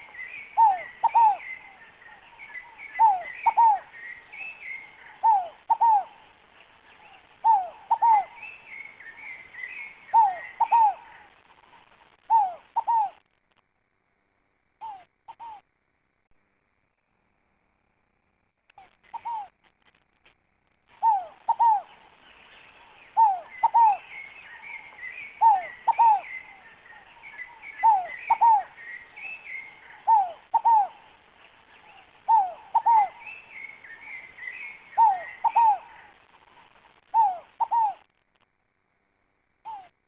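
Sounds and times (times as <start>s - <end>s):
dove cooing: 0.0s - 6.3s, 7.0s - 13.2s, 14.8s - 15.6s, 18.8s - 19.6s, 20.9s - 22.1s, 22.8s - 31.2s, 31.8s - 38.1s, 39.6s - 40.0s
small birds chirping: 0.0s - 13.3s, 18.7s - 20.1s, 20.8s - 38.2s, 39.6s - 40.0s.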